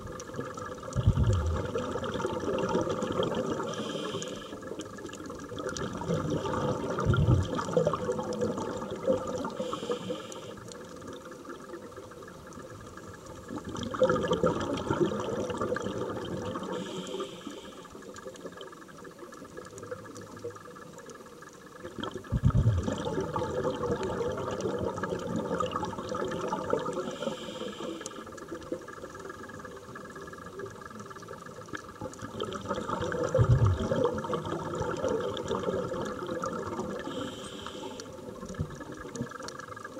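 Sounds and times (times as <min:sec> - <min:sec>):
exhaled bubbles rushing: 0:00.0 - 0:09.8, 0:13.4 - 0:17.1, 0:21.8 - 0:27.4, 0:32.0 - 0:37.6
regulator inhale hiss: 0:03.6 - 0:04.8, 0:09.4 - 0:10.8, 0:16.6 - 0:18.2, 0:26.9 - 0:28.5, 0:37.0 - 0:38.4.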